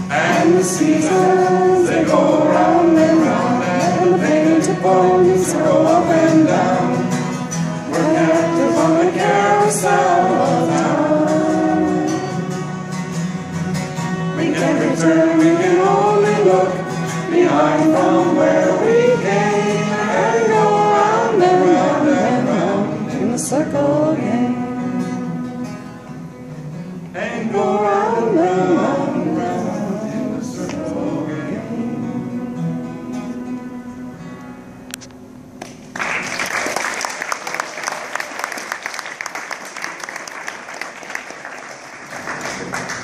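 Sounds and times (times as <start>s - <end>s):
group singing folk song: 0.0s - 34.4s
acoustic guitar and violin: 0.0s - 35.6s
audience applause: 35.6s - 43.0s.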